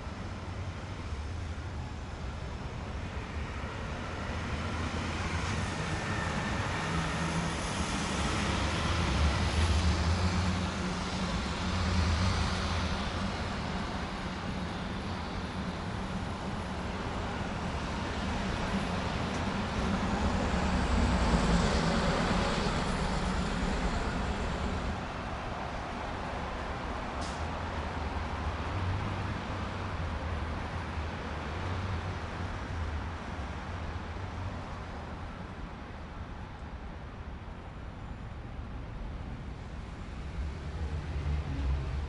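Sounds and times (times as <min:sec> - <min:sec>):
road traffic rumble: 0:00.1 - 0:42.0
vehicles passing by: 0:39.5 - 0:42.0.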